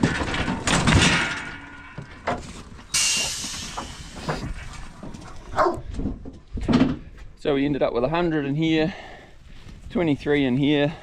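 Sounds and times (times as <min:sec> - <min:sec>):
metal gates knocking: 0:00.0 - 0:04.0
compressed air hiss: 0:03.0 - 0:04.4.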